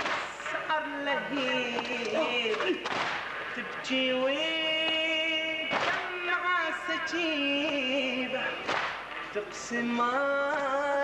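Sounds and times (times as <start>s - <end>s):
man chanting a lament: 0.7s - 2.9s
chest-beating slap in unison: 2.5s - 3.3s, 5.7s - 6.1s, 8.7s - 9.0s.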